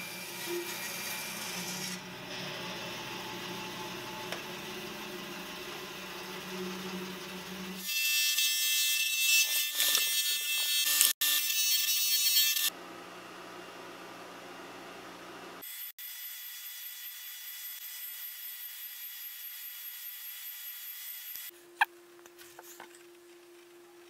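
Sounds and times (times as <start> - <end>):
disc sander grinding wood: 0.0 - 7.9
bandsaw humming: 0.0 - 12.8
quiet machine hum: 0.1 - 7.8, 21.5 - 24.0.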